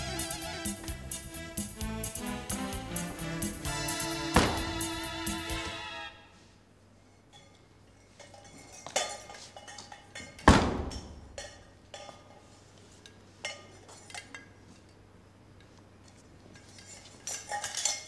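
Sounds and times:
metal pots clinking and clanking: 7.2s - 14.6s, 16.6s - 18.0s.

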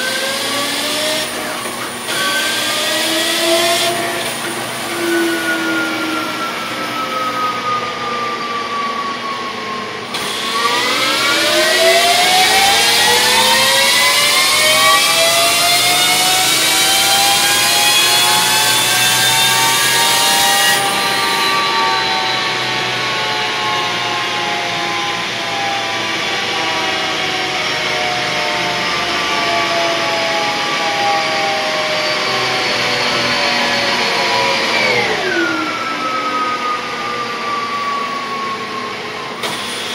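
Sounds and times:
loud rushing noise: 0.0s - 23.2s
electric motorcycle whining: 0.0s - 39.9s.

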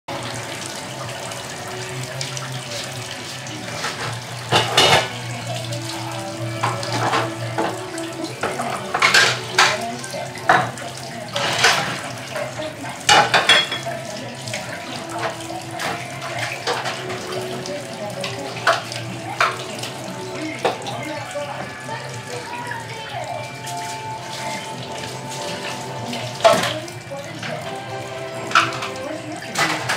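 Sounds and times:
tap water running: 0.1s - 29.9s
dishes and cutlery clinking: 3.7s - 5.3s, 6.6s - 14.1s, 15.1s - 17.6s, 18.2s - 21.7s, 23.6s - 29.9s.

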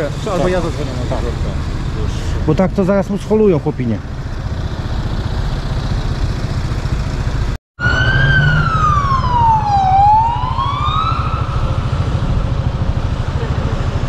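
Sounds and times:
vehicle engine rumbling: 0.0s - 14.0s
emergency siren wailing: 7.8s - 12.8s.

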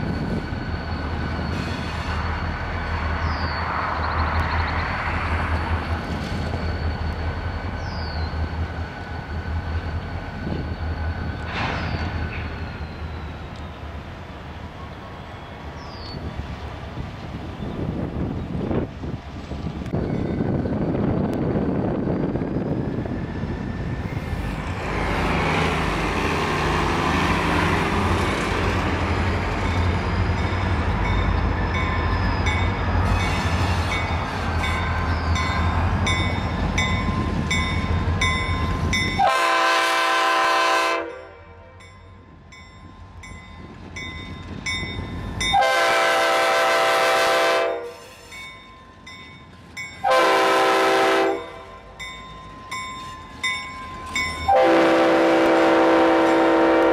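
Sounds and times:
diesel locomotive engine rumble: 0.0s - 56.9s
train air horn blasts: 39.2s - 41.8s, 45.5s - 48.3s, 50.0s - 51.8s, 54.5s - 56.9s.

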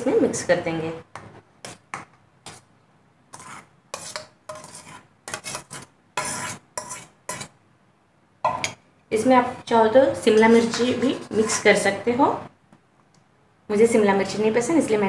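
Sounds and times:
spoon scraping steel bowls: 1.6s - 2.6s, 3.3s - 7.6s, 10.2s - 11.9s.

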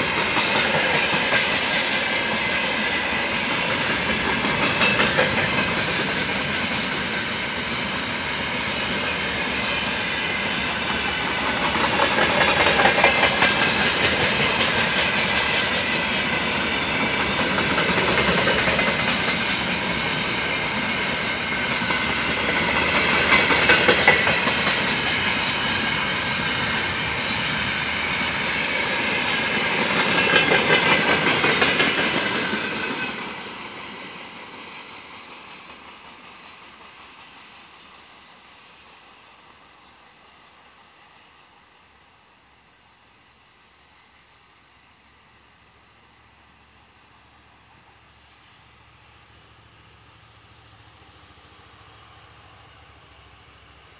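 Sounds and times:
wheels clacking over rail joints: 0.0s - 34.2s
freight train wagons rolling: 0.0s - 37.8s.

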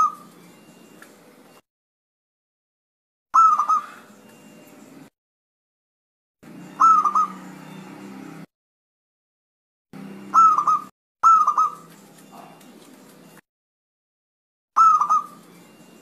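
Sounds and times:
dove cooing: 0.0s - 0.5s, 3.4s - 4.2s, 6.6s - 7.8s, 10.3s - 13.3s, 14.8s - 15.8s.

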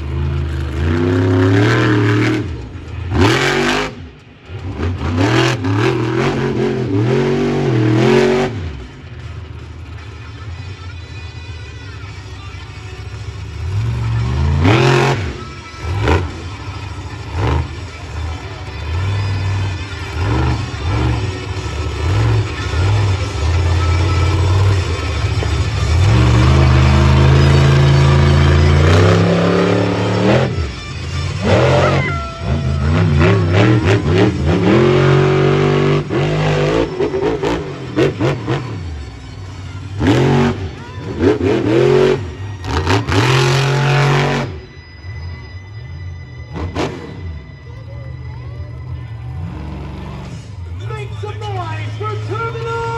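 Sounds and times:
truck engine revving hard: 0.0s - 9.3s, 13.4s - 45.4s, 46.5s - 52.9s.

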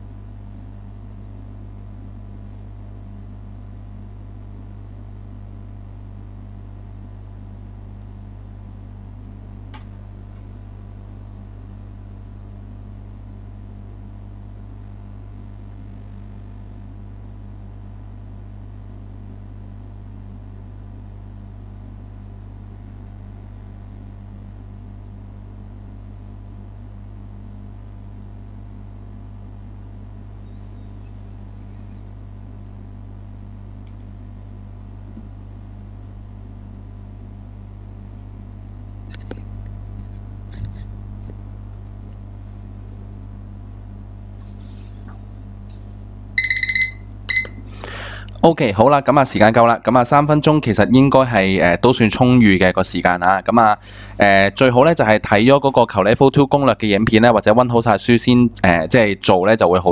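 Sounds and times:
low electrical hum: 0.0s - 59.9s
faint high tones: 42.7s - 43.2s, 46.4s - 47.6s.

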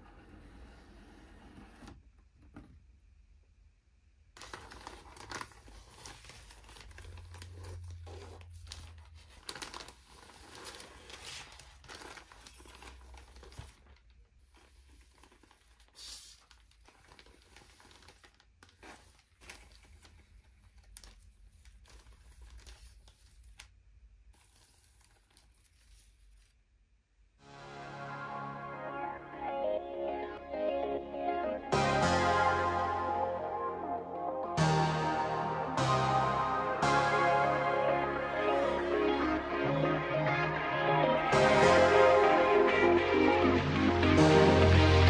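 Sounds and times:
plastic bags crinkling: 4.4s - 23.8s.

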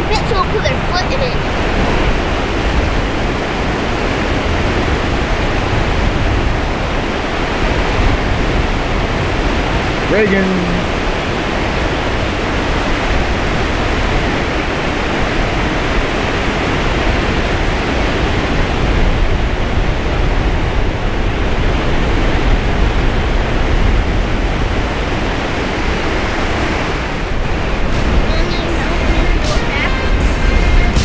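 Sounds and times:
surf on a beach: 0.0s - 31.0s
wind rumbling on microphone: 0.0s - 31.0s.

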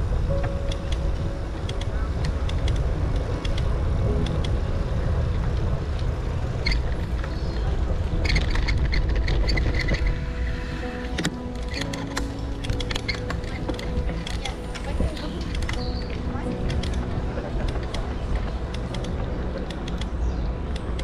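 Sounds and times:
wind buffeting microphone: 0.0s - 21.0s
scattered clicks: 0.4s - 4.6s, 11.1s - 21.0s.

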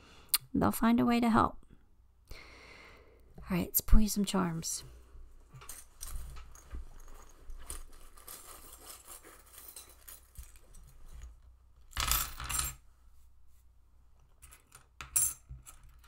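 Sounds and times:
metal charms jingling: 5.6s - 11.2s
metal charms clattering: 5.6s - 11.3s.

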